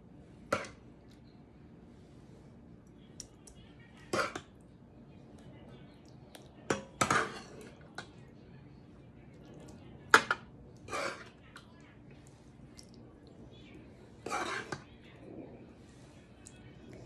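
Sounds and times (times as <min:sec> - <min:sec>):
metal spoon scraping metal pot: 0:14.2 - 0:14.9.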